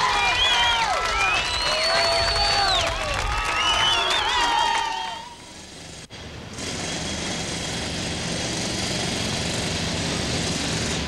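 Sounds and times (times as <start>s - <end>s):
steady street hiss: 0.0s - 11.0s.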